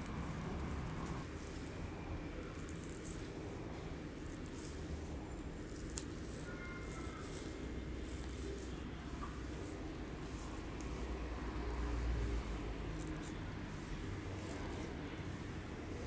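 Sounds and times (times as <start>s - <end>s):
fingers rubbing through hair: 2.6s - 3.4s, 4.2s - 16.0s.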